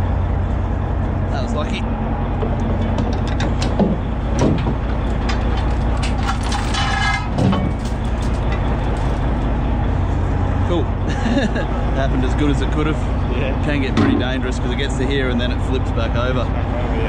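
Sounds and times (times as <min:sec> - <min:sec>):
boat engine running: 0:00.0 - 0:17.0
anchor knocking and scraping: 0:02.4 - 0:09.4
anchor chain clanking: 0:02.7 - 0:09.6.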